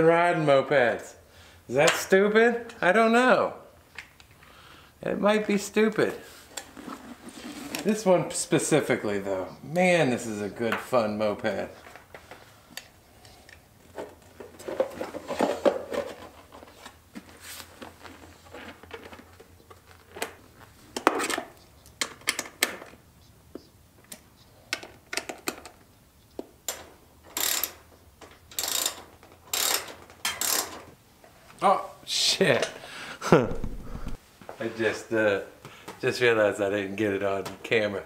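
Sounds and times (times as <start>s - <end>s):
plastic and metal rustling: 5.8s - 8.1s, 10.9s - 23.0s.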